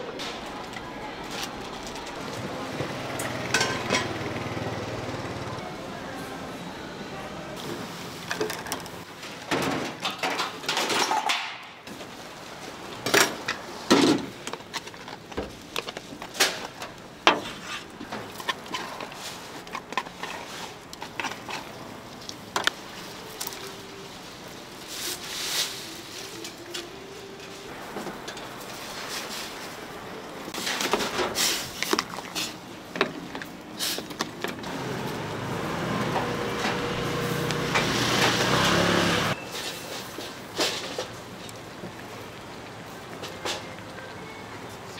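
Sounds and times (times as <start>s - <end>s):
street noise: 0.0s - 44.9s
utensils clinking on steel trays: 3.2s - 4.3s, 8.2s - 11.7s
low vehicle rumble: 34.6s - 39.4s.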